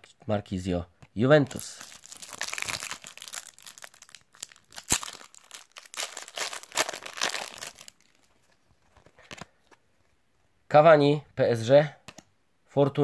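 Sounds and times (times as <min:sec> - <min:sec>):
foil packet crinkling and tearing: 0:01.5 - 0:08.5
foil packet sharp crack: 0:01.6 - 0:08.0.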